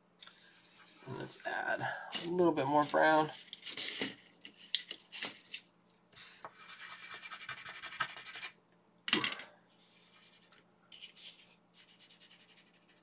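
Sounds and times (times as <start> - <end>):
pastel rubbing on paper: 6.2 - 8.6, 9.8 - 13.0.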